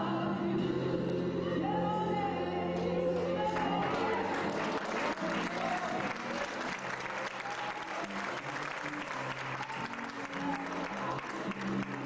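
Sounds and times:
music with low chords: 0:00.0 - 0:12.0
congregation applauding: 0:03.6 - 0:12.0.

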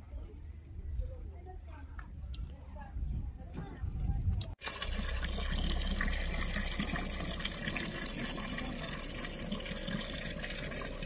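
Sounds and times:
water pouring and splashing: 0:04.6 - 0:11.0.

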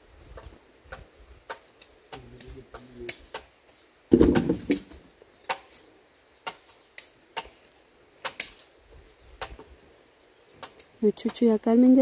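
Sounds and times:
sharp knocks: 0:04.1 - 0:05.6.

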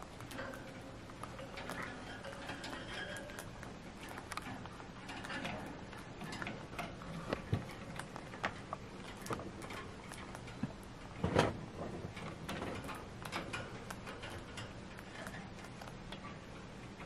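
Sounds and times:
animal gnawing on wood: 0:00.0 - 0:16.5.

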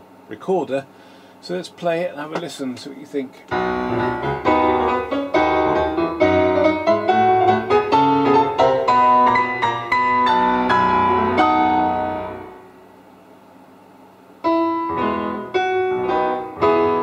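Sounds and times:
piano through loudspeaker: 0:03.6 - 0:12.6, 0:14.5 - 0:17.0.

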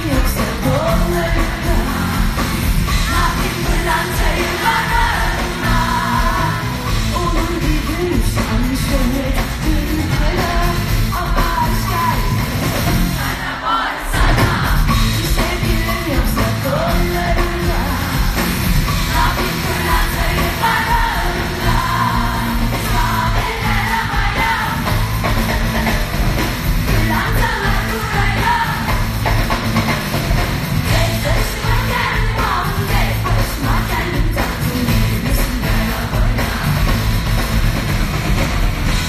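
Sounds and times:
amplified band playing: 0:00.0 - 0:39.0
woman singing into microphone: 0:03.0 - 0:12.3.

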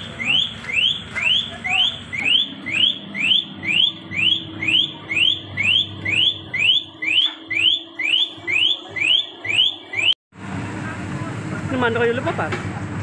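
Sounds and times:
car alarm siren whooping: 0:00.0 - 0:10.2.

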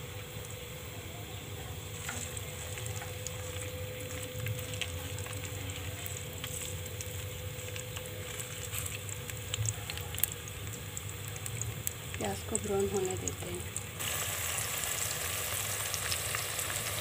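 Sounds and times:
low steady hum: 0:00.0 - 0:17.0
onions sizzling in oil: 0:00.0 - 0:17.0
ladle stirring in pot: 0:01.3 - 0:14.1.

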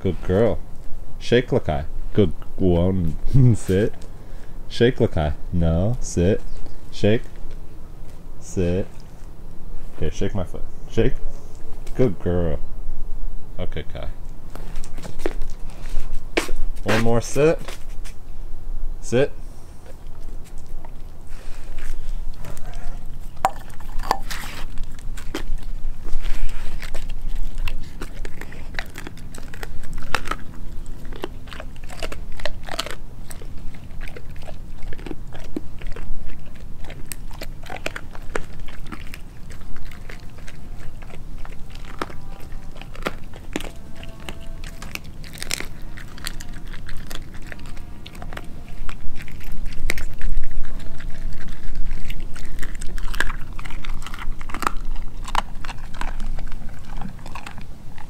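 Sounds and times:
dog chewing with crunches: 0:00.0 - 0:12.3, 0:14.2 - 0:18.3, 0:19.3 - 0:58.0.

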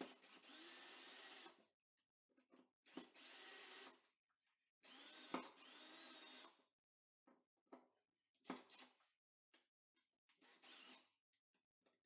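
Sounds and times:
cordless drill motor whine: 0:00.4 - 0:01.4.

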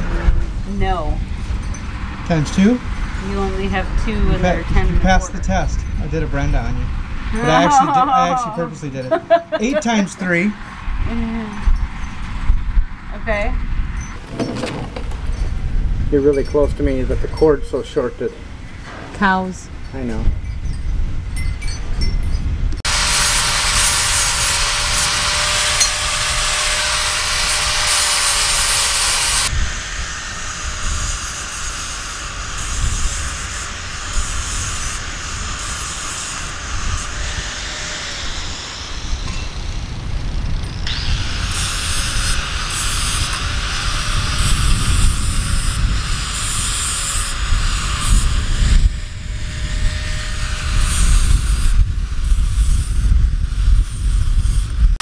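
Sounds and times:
angle grinder grinding steel: 0:01.7 - 0:05.9, 0:22.8 - 0:55.0.

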